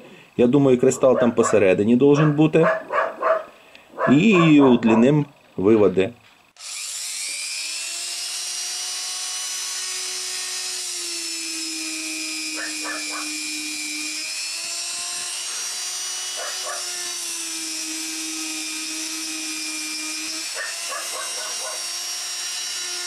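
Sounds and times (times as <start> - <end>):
electric engraver whining: 6.4 - 23.0.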